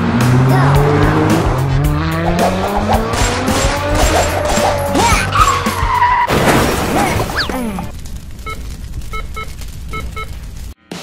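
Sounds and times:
car engines revving: 0.0s - 6.3s
tire screech: 2.1s - 6.3s
car crash: 5.4s - 9.0s.

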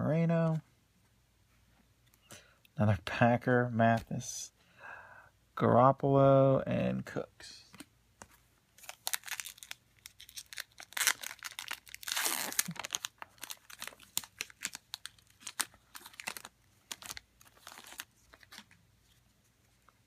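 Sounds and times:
card pack wrapper tearing: 8.8s - 18.7s.

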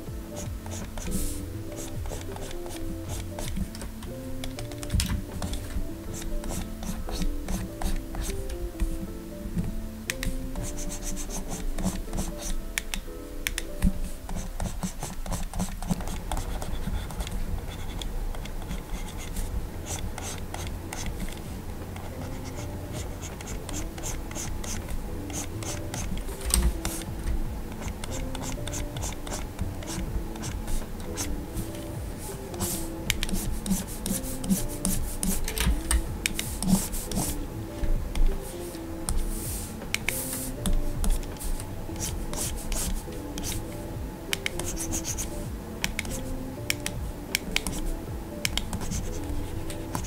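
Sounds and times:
soft background music: 0.0s - 50.0s
stylus scratching on a screen: 0.4s - 3.8s, 4.6s - 9.0s, 10.6s - 12.6s, 13.6s - 21.4s, 22.0s - 27.0s, 32.2s - 35.5s, 36.4s - 37.4s, 38.4s - 43.6s, 44.5s - 45.3s, 48.7s - 50.0s.

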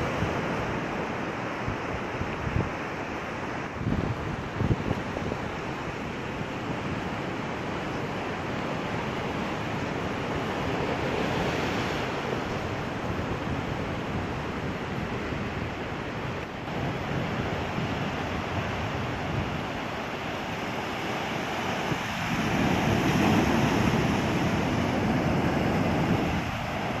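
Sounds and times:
ocean surf on beach: 0.0s - 27.0s
wind buffeting microphone: 3.6s - 5.8s, 11.1s - 27.0s.

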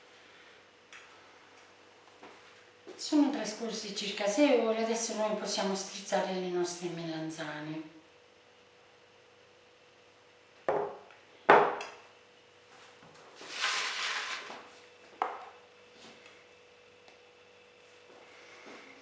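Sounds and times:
crockery knocking on countertop: 10.7s - 11.8s.

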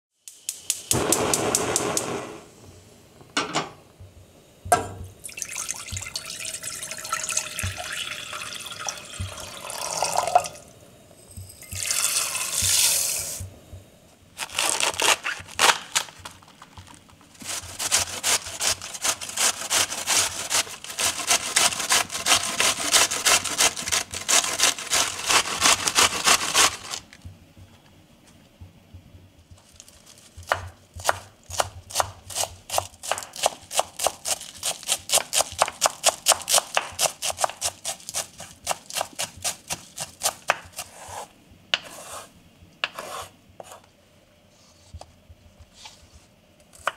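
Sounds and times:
water running and pouring: 5.2s - 10.6s, 11.6s - 13.2s
cabbage grated on metal grater: 17.4s - 27.0s, 31.9s - 42.3s
knife chopping herbs: 17.4s - 27.0s, 30.2s - 43.8s
knife cutting on wooden board: 30.5s - 43.8s.

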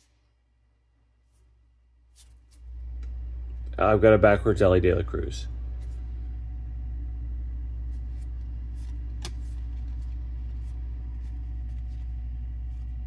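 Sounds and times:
steady low hum: 0.0s - 13.0s
cards sliding by hand: 2.1s - 2.7s, 7.9s - 13.0s.

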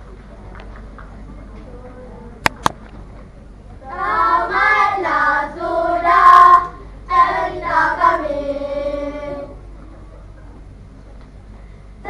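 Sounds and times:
children singing together: 3.9s - 9.6s.

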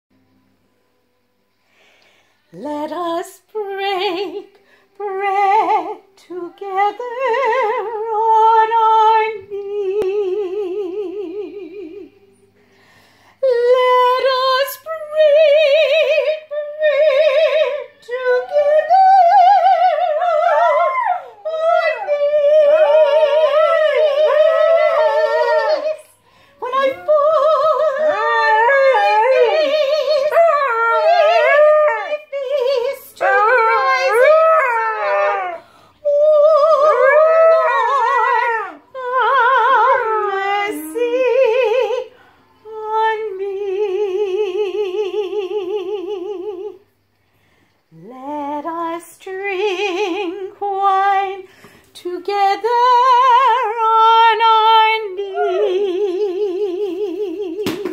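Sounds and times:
woman singing slow spiritual: 2.5s - 12.5s, 13.3s - 47.0s, 47.9s - 57.9s
dog howling: 18.3s - 26.1s, 26.7s - 40.4s, 55.1s - 56.2s.

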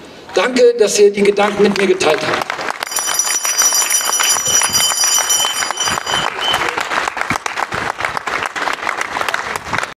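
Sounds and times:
crowd applauding: 1.4s - 9.9s
high whistle-like tone: 4.1s - 6.8s.

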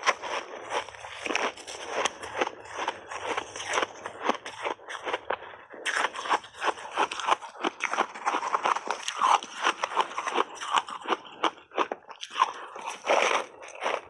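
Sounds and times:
ice being chewed and crunched: 0.0s - 14.0s.

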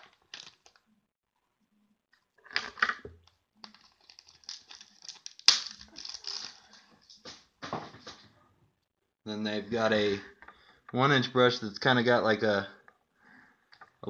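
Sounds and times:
packaging clicks and crinkles: 0.0s - 0.8s, 3.6s - 6.8s.

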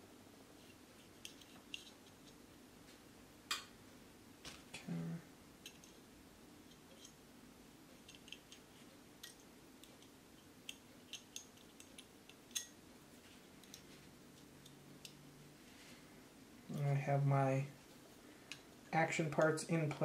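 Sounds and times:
small metallic clicks of pistol parts: 10.7s - 12.7s.

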